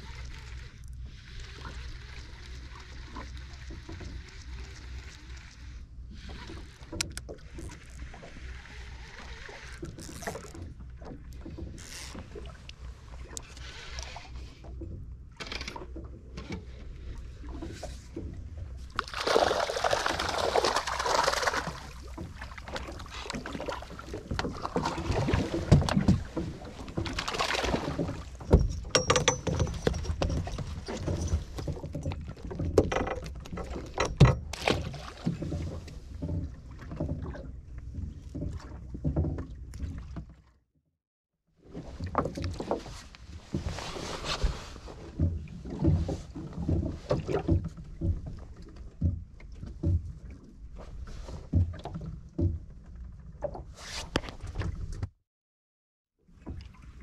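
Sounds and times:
fishing gear knocking on boat: 0:27.8 - 0:34.6.

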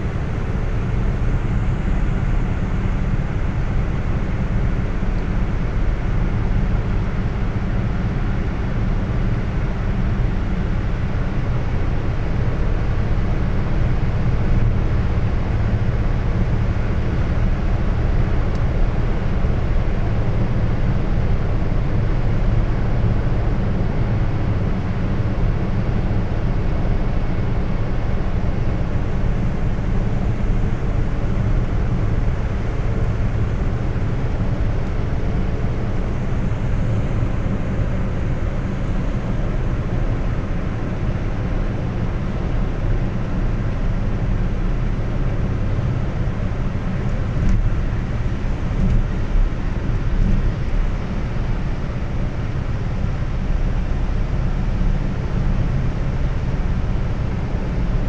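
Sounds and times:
car cabin road rumble: 0:00.0 - 0:58.0.

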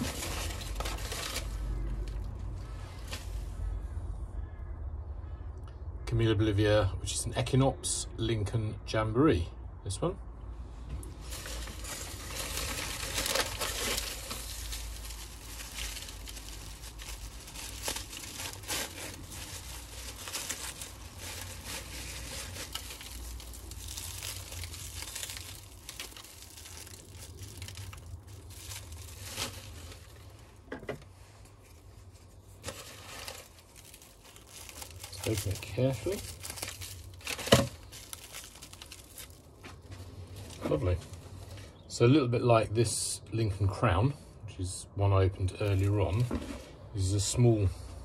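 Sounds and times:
paper and bubble wrap crinkling: 0:00.0 - 0:03.8, 0:11.1 - 0:41.9, 0:45.6 - 0:46.7.

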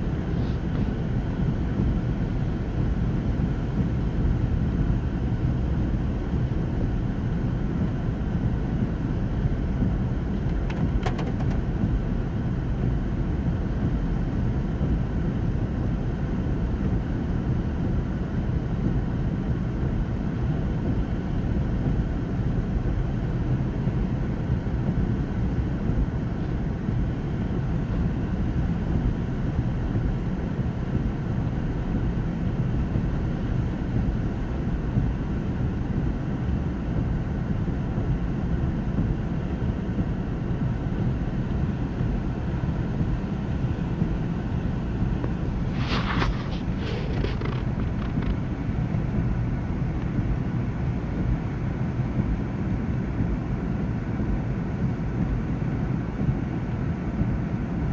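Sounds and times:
car cabin rumble: 0:00.0 - 0:57.9.

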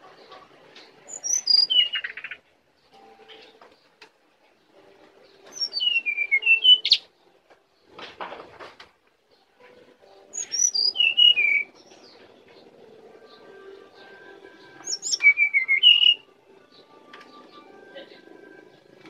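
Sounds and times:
bird whistled song: 0:01.1 - 0:02.4, 0:05.4 - 0:07.1, 0:10.3 - 0:12.3, 0:13.2 - 0:17.7.

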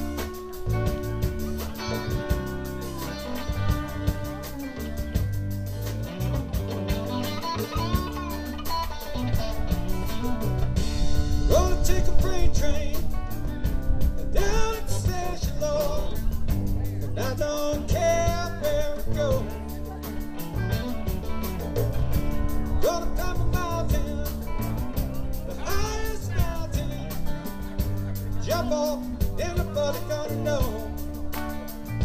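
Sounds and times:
bending guitar melody: 0:00.0 - 0:32.0
live rock band: 0:00.0 - 0:32.0.

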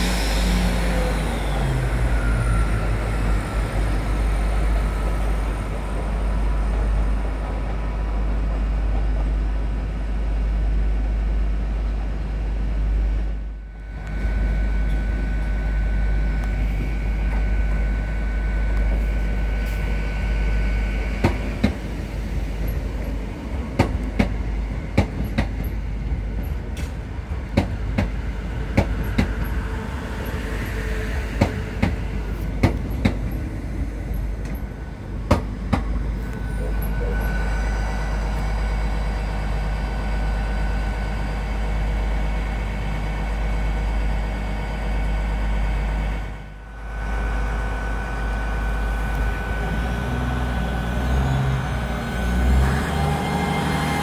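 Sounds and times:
train rumbling on track: 0:00.0 - 0:54.0
high whine: 0:35.9 - 0:41.3.

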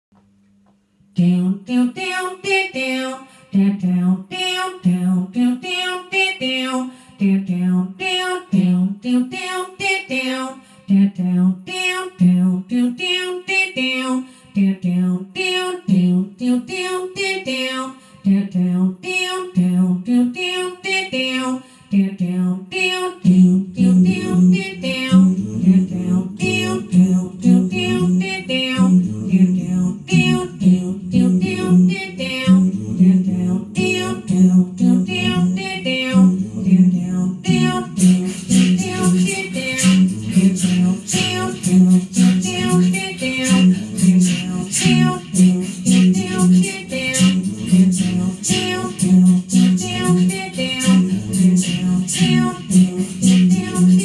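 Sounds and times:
woman singing wordless phrases: 0:01.1 - 0:54.0
deeper vocal layer: 0:23.3 - 0:54.0.

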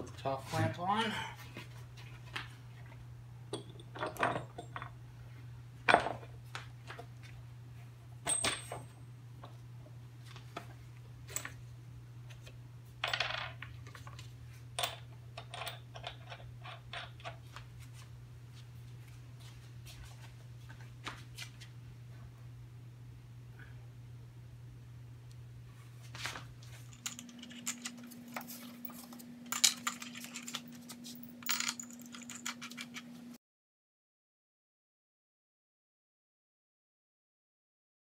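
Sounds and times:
metal nuts and washers clinking: 0:03.5 - 0:04.9, 0:08.2 - 0:09.0, 0:14.8 - 0:17.4, 0:26.8 - 0:33.1.

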